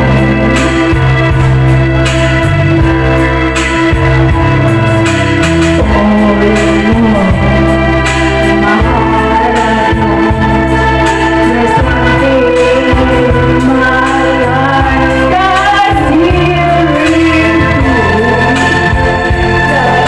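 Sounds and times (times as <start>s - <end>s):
organ-like keyboard chords: 0.0s - 20.0s
woman singing into a microphone: 5.8s - 20.0s.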